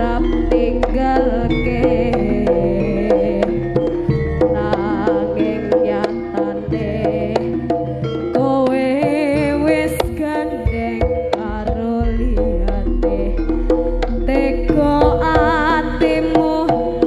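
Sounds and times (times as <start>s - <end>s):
hand drum strokes: 0.0s - 17.0s
sustained melody tones: 0.0s - 17.0s
wavering melody line: 0.0s - 17.0s.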